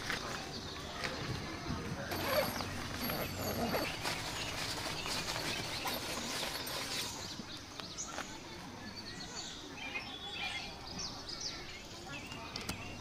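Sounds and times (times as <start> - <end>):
birds chirping: 0.0 - 13.0
tent fabric rustling: 2.1 - 7.6.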